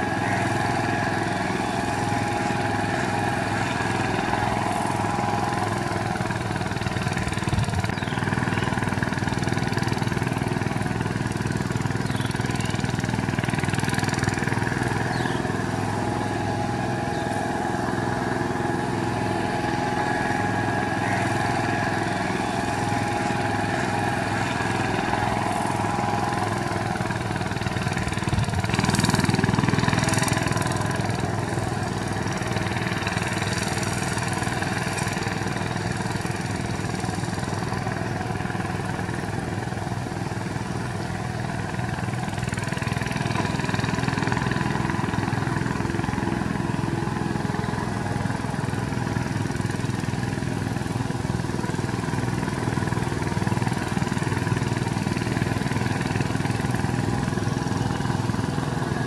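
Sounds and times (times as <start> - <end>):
diesel tiller engine running: 0.0 - 59.0.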